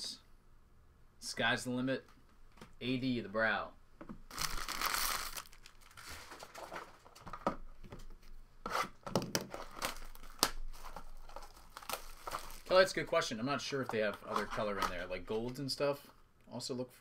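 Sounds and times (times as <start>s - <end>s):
plastic wrapping crinkling and tearing: 4.3s - 7.4s, 9.4s - 13.0s.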